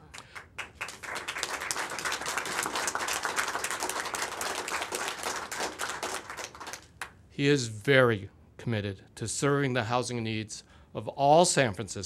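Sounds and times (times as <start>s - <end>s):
crowd applauding: 0.3s - 7.1s.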